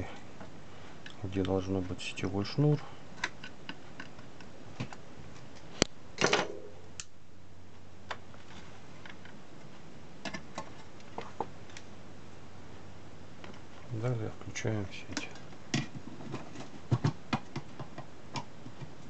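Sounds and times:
hands clicking on metal case: 15.2 - 19.0.

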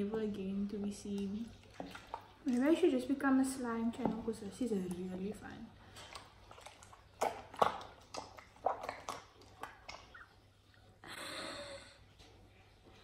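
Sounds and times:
slime squishing: 3.9 - 10.6
slime stretching: 6.1 - 10.4.

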